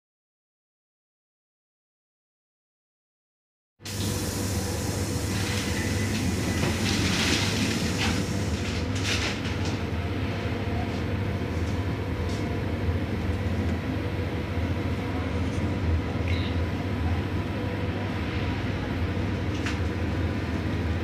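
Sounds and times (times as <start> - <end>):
train wheels rumbling on rails: 3.9 - 14.0.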